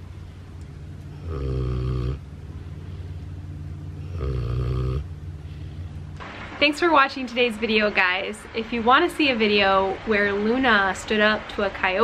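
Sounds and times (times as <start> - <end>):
pig snoring: 1.1 - 2.3, 4.0 - 5.2.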